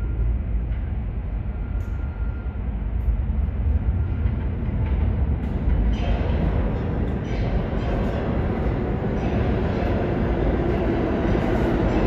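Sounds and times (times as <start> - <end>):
faint high whine: 0.0 - 4.2
subway train rumbling: 0.0 - 12.0.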